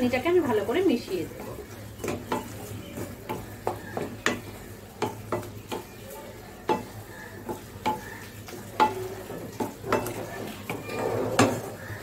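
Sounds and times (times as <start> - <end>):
spatula scraping metal pan: 6.8 - 12.0.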